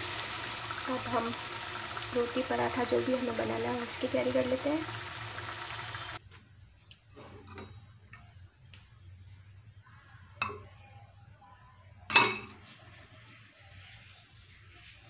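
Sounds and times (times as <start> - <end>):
faint low hum: 6.2 - 15.0
dishes clinking: 7.2 - 7.9, 12.1 - 12.6.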